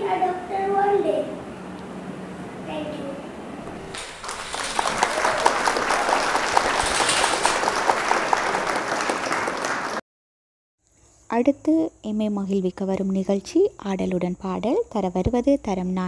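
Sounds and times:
crowd applauding: 3.7s - 10.0s.

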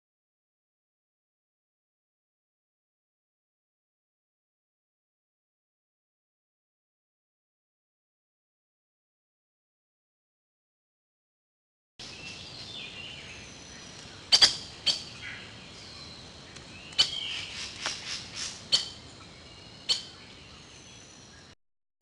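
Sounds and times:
loud sharp bird chirps: 12.0s - 16.1s, 16.8s - 21.5s
steady hiss: 12.0s - 21.5s
birds chirping and singing: 12.0s - 21.6s.

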